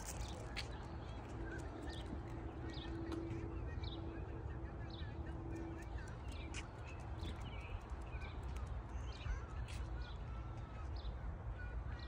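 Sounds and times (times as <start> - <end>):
small birds chirping: 0.0 - 11.7
footsteps on concrete: 6.0 - 7.8.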